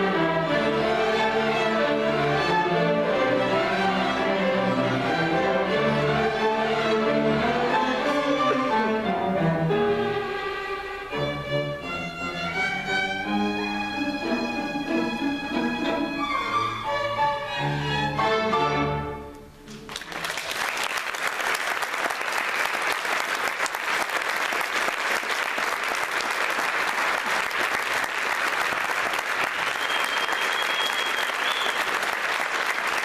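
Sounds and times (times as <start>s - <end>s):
audience applause: 19.8s - 33.0s.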